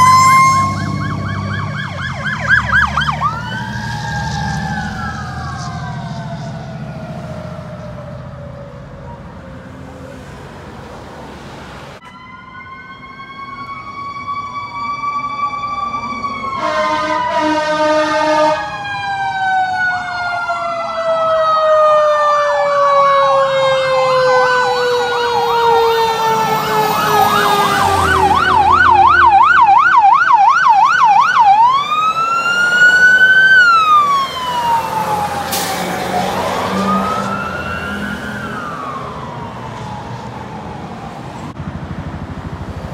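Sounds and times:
fire engine sirens: 0:00.0 - 0:42.9
short horn blast: 0:16.6 - 0:18.6.

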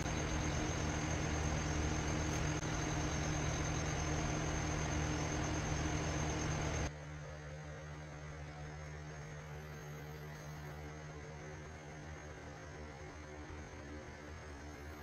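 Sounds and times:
loud hissing noise: 0:00.0 - 0:06.9
low electrical hum: 0:00.0 - 0:15.0.

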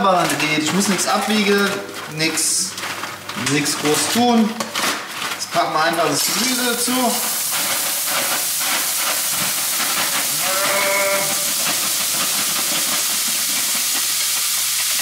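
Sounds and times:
vegetables sizzling in a pan: 0:06.0 - 0:15.0.

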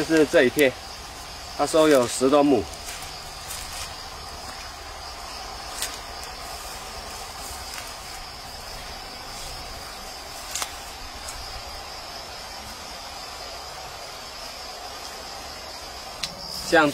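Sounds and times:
insects chirring: 0:00.0 - 0:16.9.

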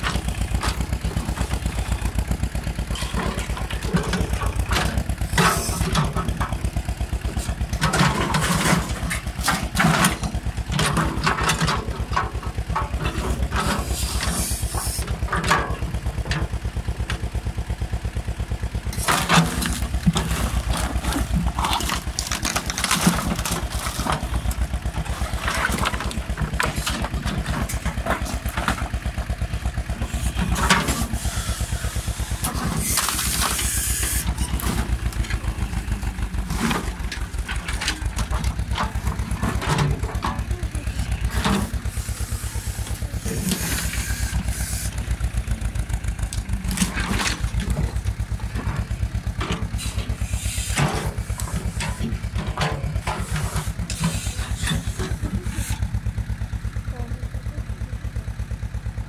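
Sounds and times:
mini excavator engine running: 0:00.0 - 0:59.0
timber crashing: 0:19.1 - 0:24.6
wooden planks cracking and clattering: 0:19.1 - 0:29.2.

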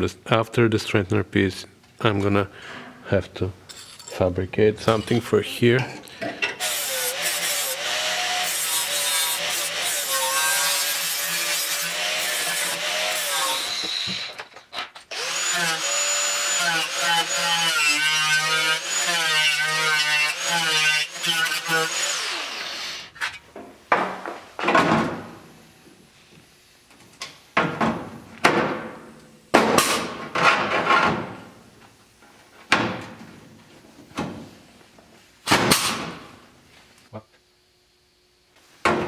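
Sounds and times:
pneumatic punch tool snapping: 0:35.5 - 0:36.2.

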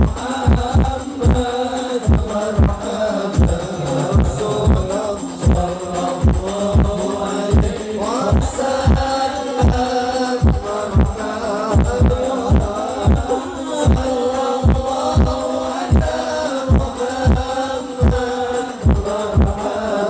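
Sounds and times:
men singing together: 0:00.0 - 0:20.0.

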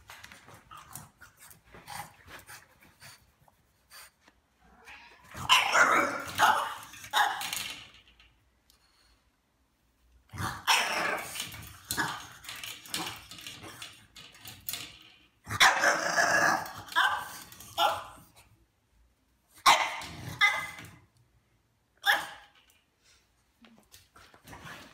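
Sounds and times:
dog barking and yipping: 0:05.4 - 0:07.7, 0:16.8 - 0:18.3, 0:19.6 - 0:21.0, 0:22.0 - 0:22.6.

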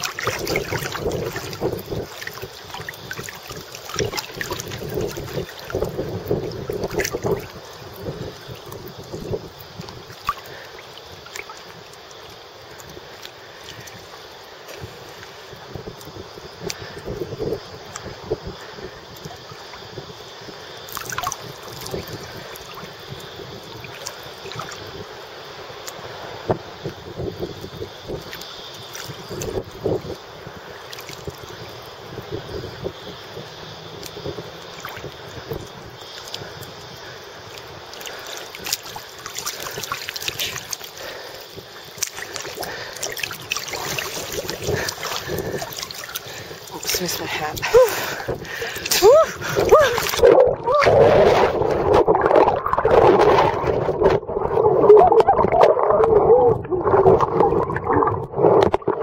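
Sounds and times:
little water splashes: 0:00.0 - 0:33.0, 0:34.0 - 0:59.0
small waves lapping: 0:00.0 - 0:59.0.

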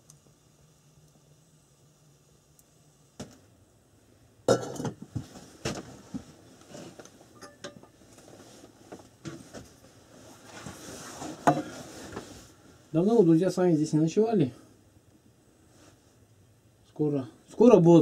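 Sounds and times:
cookware and mugs clinking: 0:04.5 - 0:05.0, 0:07.4 - 0:07.9.

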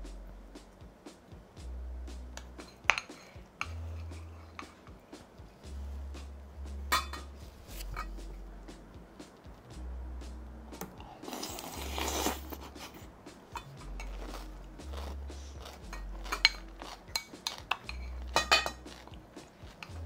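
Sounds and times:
eating noise: 0:11.0 - 0:13.0, 0:13.6 - 0:19.9
utensils clinking on ceramic bowl: 0:15.9 - 0:19.0.

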